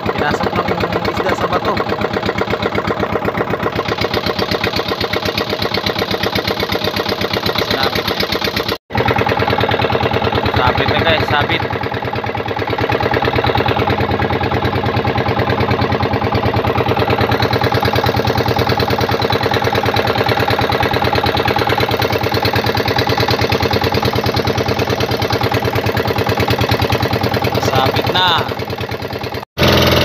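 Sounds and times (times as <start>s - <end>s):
boat engine chugging: 0.0s - 30.0s.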